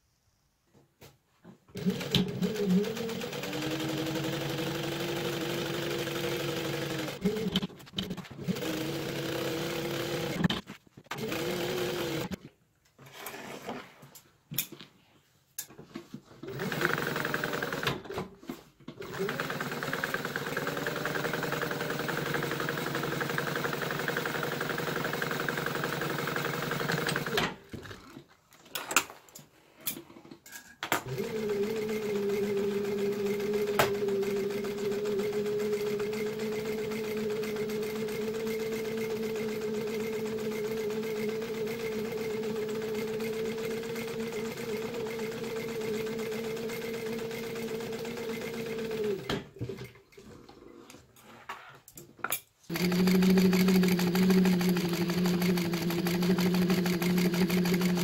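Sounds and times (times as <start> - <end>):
sewing machine stitching: 1.7 - 12.4, 16.4 - 18.3, 18.9 - 28.2, 31.0 - 50.0, 52.7 - 58.0.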